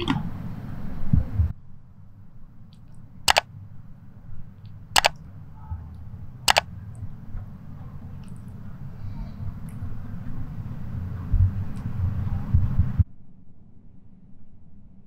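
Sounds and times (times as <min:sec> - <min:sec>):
mouse double clicks: 0:05.0 - 0:05.2.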